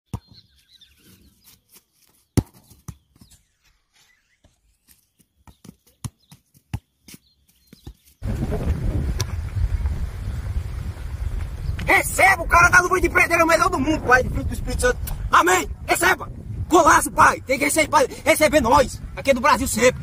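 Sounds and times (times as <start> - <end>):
football being kicked: 2.4 - 3.4, 5.4 - 8.0
wind buffeting microphone: 8.2 - 20.0.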